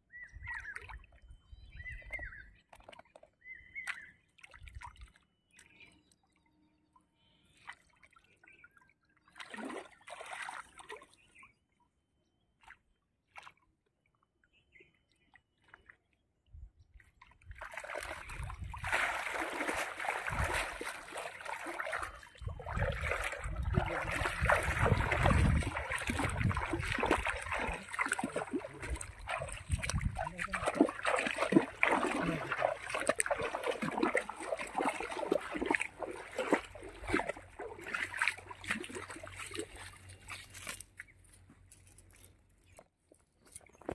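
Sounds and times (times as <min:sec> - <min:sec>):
water splashing from wading: 0:09.3 - 0:11.2, 0:17.2 - 0:41.1.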